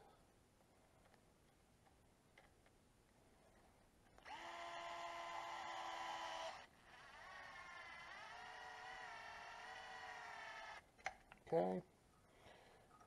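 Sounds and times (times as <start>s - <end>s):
electric screwdriver whirring: 4.2s - 10.8s.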